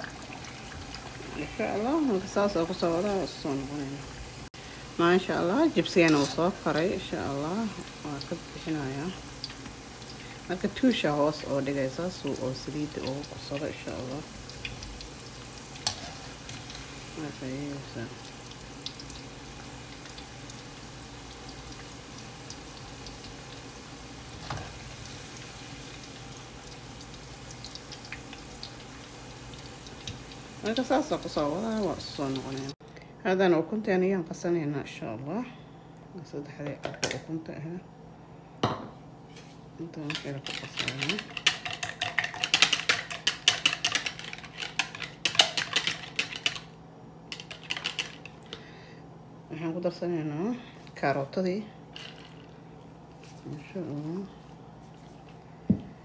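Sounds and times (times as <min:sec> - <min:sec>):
chips sizzling in hot oil: 0:00.0 - 0:32.8.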